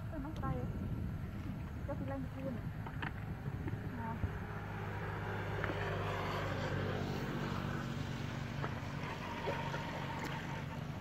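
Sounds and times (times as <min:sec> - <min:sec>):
motor humming: 0:05.6 - 0:11.0.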